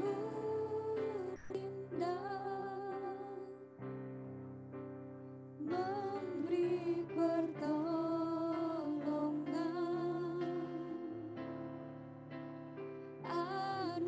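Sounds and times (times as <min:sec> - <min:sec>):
women singing a worship song: 0:00.0 - 0:03.5, 0:05.6 - 0:11.4, 0:13.3 - 0:14.0.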